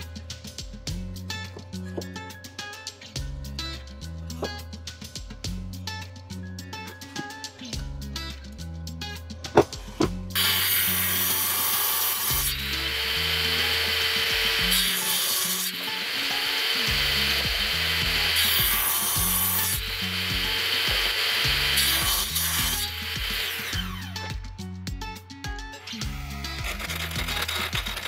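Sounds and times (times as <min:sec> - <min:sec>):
table saw cutting wood: 0:10.4 - 0:24.2, 0:25.8 - 0:28.0.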